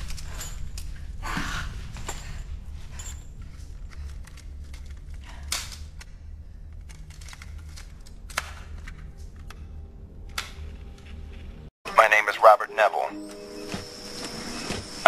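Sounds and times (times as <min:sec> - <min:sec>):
steady low hum: 0:00.0 - 0:11.7.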